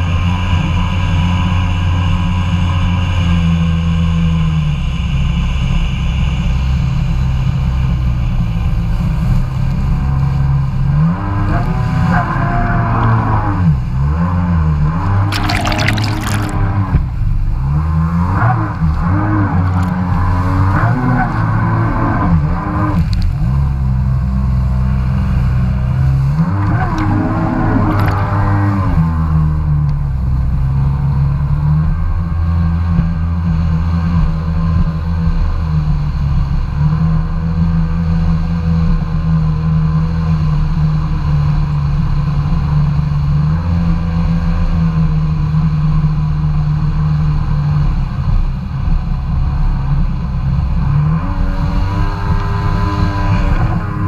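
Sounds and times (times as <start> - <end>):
jet ski engine: 0.0 - 14.5, 18.2 - 54.0
water splashing: 15.3 - 16.8, 26.4 - 29.2.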